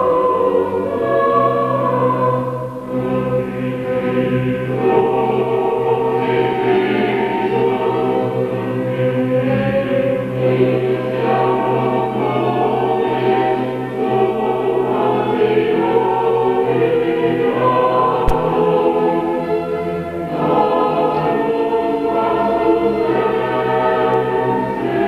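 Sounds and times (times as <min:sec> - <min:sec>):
choir singing a hymn: 0:00.0 - 0:25.0
sharp click: 0:18.2 - 0:18.7
steady low note: 0:18.3 - 0:19.0.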